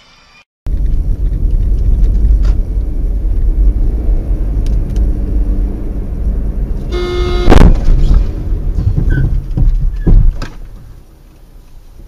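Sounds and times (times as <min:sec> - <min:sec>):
car engine and road rumble: 0:00.7 - 0:12.0
car horn blast: 0:06.9 - 0:07.9.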